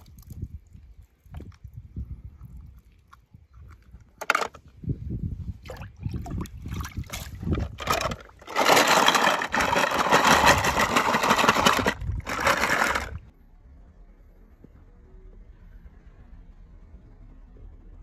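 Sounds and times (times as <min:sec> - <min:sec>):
toy cars rattling in plastic tub: 0:04.2 - 0:04.6, 0:07.5 - 0:13.2.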